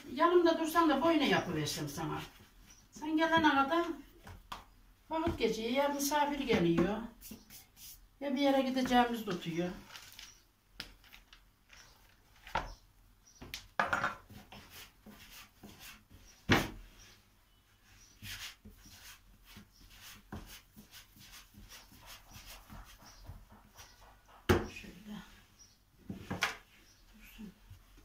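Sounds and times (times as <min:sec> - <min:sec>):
dough squishing: 0:17.8 - 0:25.4
knocks on wooden board: 0:22.8 - 0:24.8.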